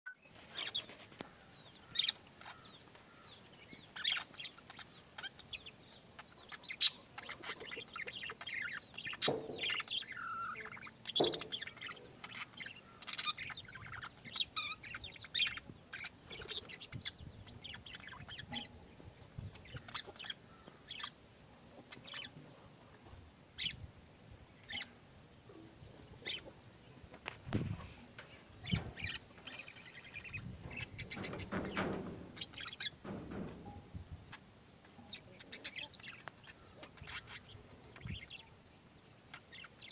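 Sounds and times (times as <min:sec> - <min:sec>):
budgerigars chirping: 0:01.6 - 0:18.8, 0:19.4 - 0:21.2, 0:23.6 - 0:23.8, 0:24.6 - 0:25.0, 0:26.2 - 0:26.5, 0:27.5 - 0:38.6.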